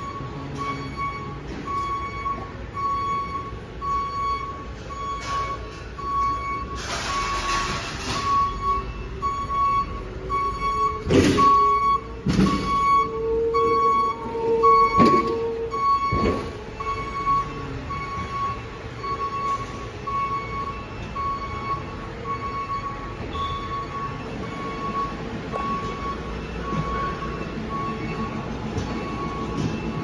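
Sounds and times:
electronic warning beeper: 0.0s - 30.0s.

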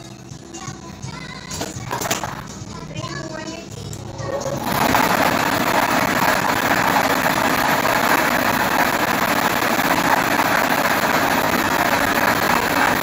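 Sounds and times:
blower noise: 0.0s - 13.0s
plastic balls rattling in drum: 1.5s - 2.5s.

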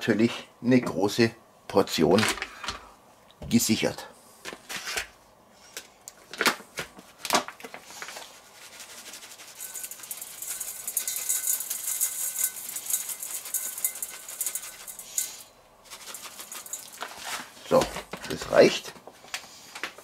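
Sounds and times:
granules pouring rattle: 9.2s - 17.5s.

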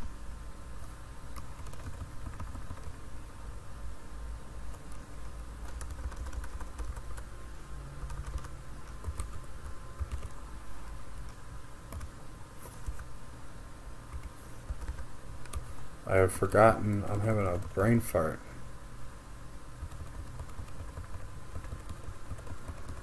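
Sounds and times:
steady low hum: 0.0s - 23.0s
computer keyboard keystrokes: 1.4s - 3.0s, 5.6s - 7.2s, 8.0s - 9.4s, 10.0s - 10.4s, 11.3s - 12.1s, 14.1s - 15.6s, 19.8s - 23.0s.

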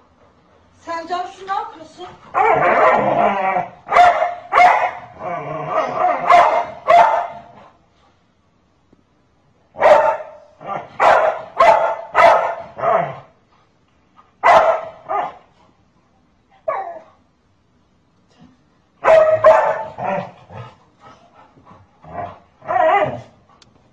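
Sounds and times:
large dog barking: 2.3s - 7.6s, 9.8s - 13.3s, 14.4s - 15.4s, 19.0s - 20.6s, 22.1s - 23.4s.

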